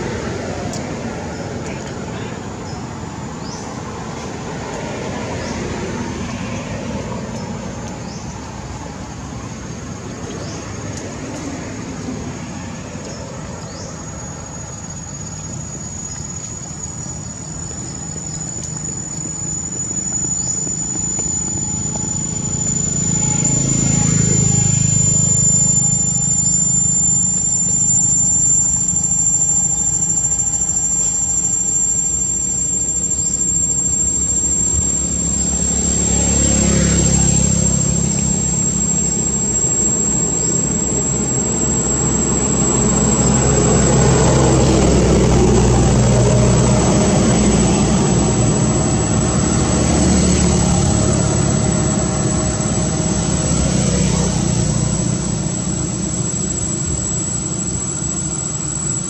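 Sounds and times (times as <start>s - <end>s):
high falling chirps: 0.0s - 59.0s
thin high whine: 0.0s - 59.0s
vehicle engine passing: 16.9s - 57.9s.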